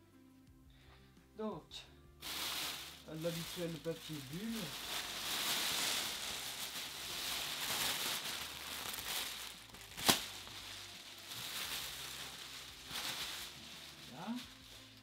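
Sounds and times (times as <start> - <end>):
bubble wrap rustling and crinkling: 2.2 - 15.0
sharp snap: 10.0 - 10.3.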